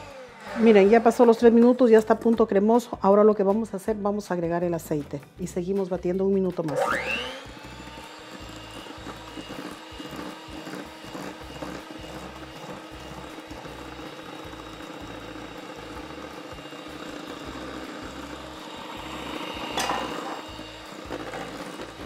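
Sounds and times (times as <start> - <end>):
electric hand mixer whining: 0.0 - 2.6, 6.6 - 22.0.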